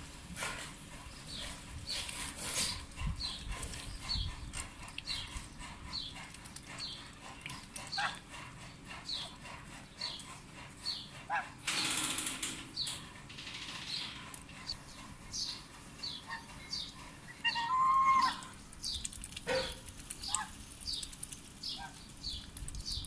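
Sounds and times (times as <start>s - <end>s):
sparrow chirping: 1.1s - 8.2s, 8.9s - 11.2s, 12.8s - 23.0s
duck bills clicking in metal bowl: 18.4s - 23.0s.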